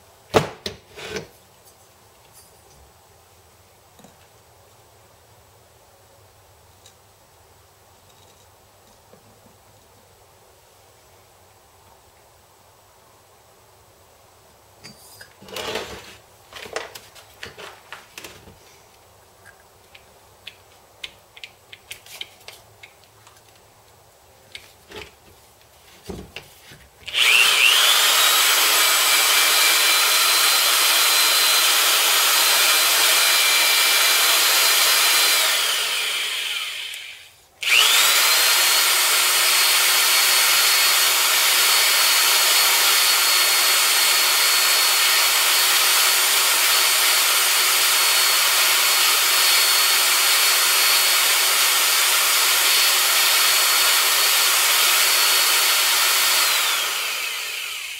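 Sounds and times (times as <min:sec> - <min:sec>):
electric drill whining: 0:15.4 - 0:16.1, 0:27.1 - 0:57.9.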